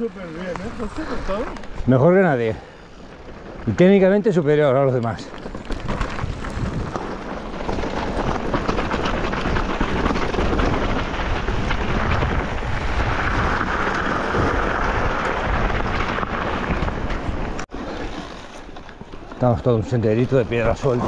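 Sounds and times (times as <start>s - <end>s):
bike tyres crunching on gravel: 0.0s - 21.0s
wind buffeting microphone: 5.4s - 17.7s.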